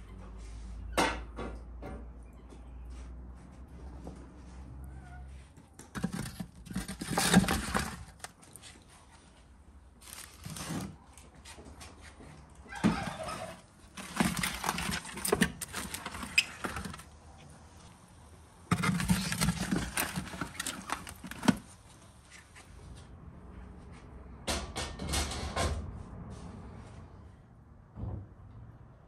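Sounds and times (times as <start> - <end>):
rustling and clatter: 5.3 - 18.0, 18.6 - 23.1
metal baking tray scraping: 5.9 - 8.3, 10.0 - 11.0, 12.7 - 17.1, 18.7 - 21.7.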